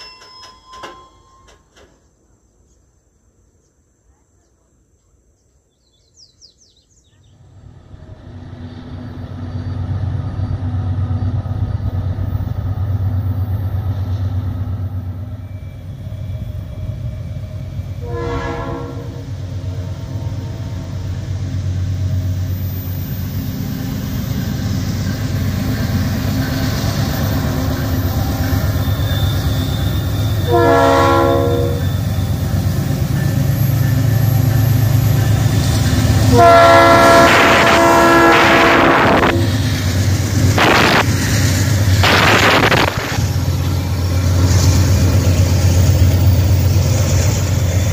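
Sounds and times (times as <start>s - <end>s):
diesel locomotive engine running: 7.3s - 47.9s
train horn blast: 18.0s - 19.4s, 29.4s - 32.1s, 36.1s - 39.7s.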